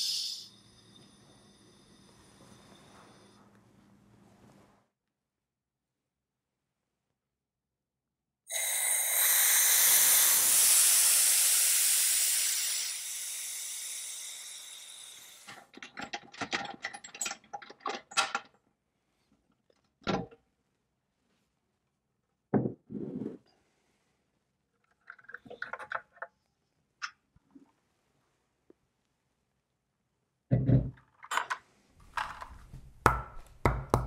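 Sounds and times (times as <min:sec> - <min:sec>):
compressed air hissing from valve: 0:00.0 - 0:03.2, 0:08.5 - 0:15.5.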